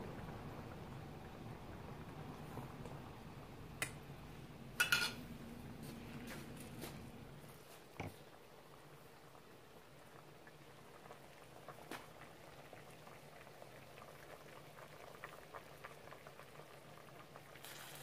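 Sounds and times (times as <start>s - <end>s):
syrup bubbling with small pops: 9.0s - 18.0s.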